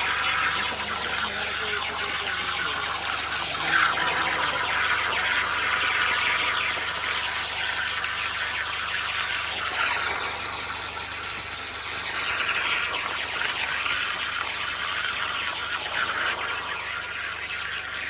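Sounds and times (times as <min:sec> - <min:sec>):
plasma torch cutting steel hiss: 0:00.0 - 0:18.0.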